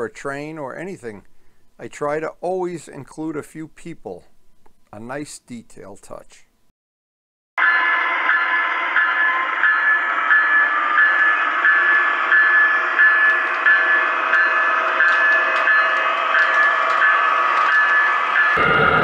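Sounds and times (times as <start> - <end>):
model train running: 7.6 - 19.0.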